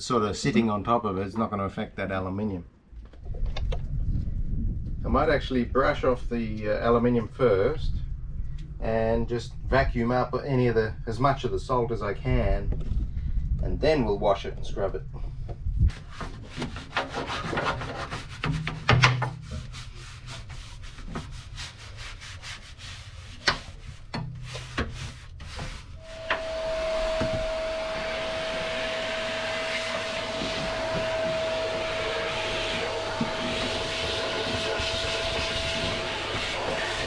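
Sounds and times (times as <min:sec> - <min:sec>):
brush scrubbing metal floor: 0:15.9 - 0:37.0
vacuum cleaner running: 0:26.0 - 0:37.0.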